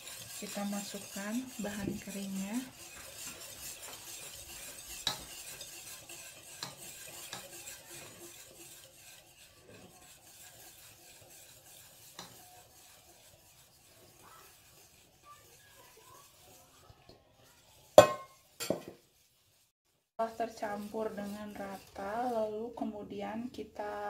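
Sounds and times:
metal spoon scraping a pot: 0.0 - 23.0
spoon clinking against pot: 3.3 - 7.6, 18.0 - 18.9.

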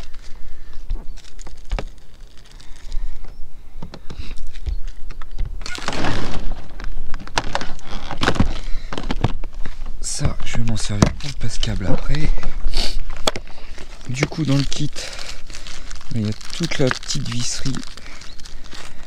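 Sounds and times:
knocks and thumps of handling: 3.2 - 12.5.

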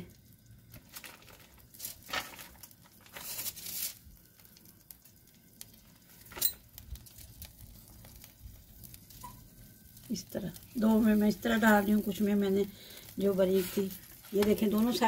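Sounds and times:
buns crackling and rustling: 0.0 - 15.0
burgers sizzling on a griddle: 0.0 - 15.0.

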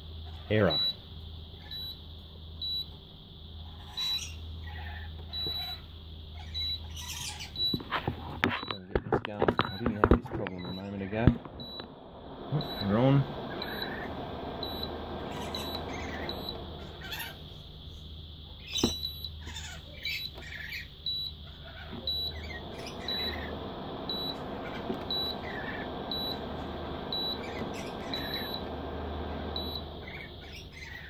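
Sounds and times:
steady low hum: 6.8 - 31.0.

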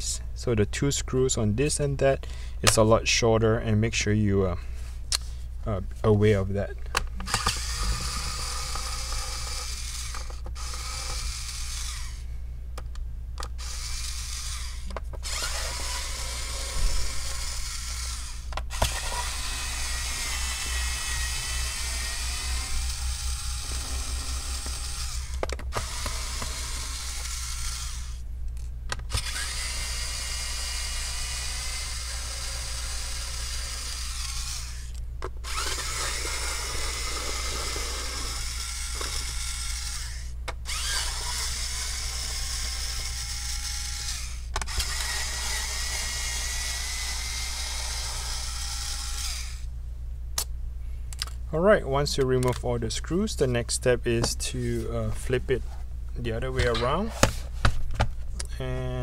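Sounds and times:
electric screwdriver whirring: 7.3 - 12.2, 13.4 - 28.2, 29.0 - 49.7.

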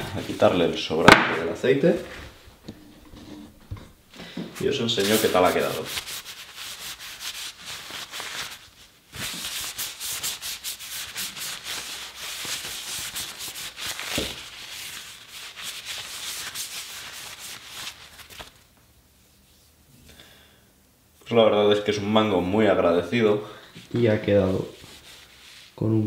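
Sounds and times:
paper towel rubbing wood: 4.6 - 18.5, 23.8 - 25.8.

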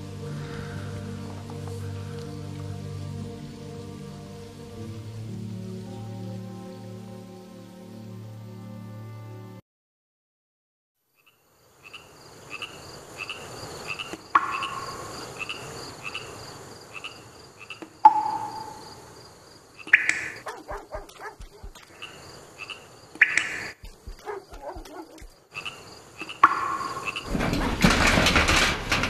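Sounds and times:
frog calls: 11.2 - 27.3
high insect trill: 11.2 - 27.3
sharp ringing clicks: 18.1 - 18.8.

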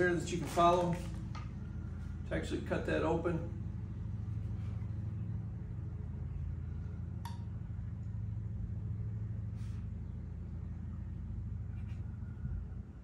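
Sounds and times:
low background hum: 0.0 - 13.0
soft scrape: 9.5 - 10.0.

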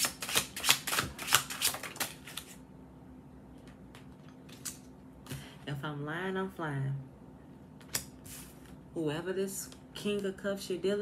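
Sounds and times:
cards being shuffled: 0.0 - 2.6.

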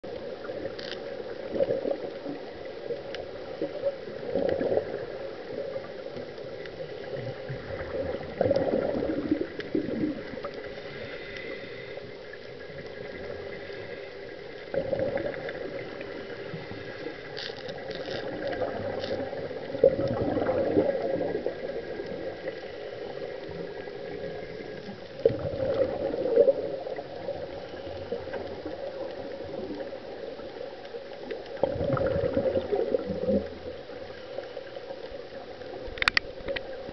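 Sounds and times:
exhaled bubbles gurgling: 0.0 - 36.9
watery hiss: 6.8 - 29.4.

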